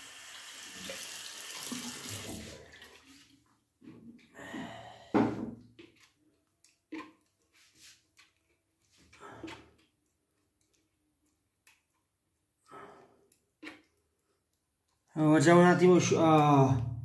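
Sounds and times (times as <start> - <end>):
water running from tap: 0.0 - 3.2
water splashes: 0.7 - 3.4.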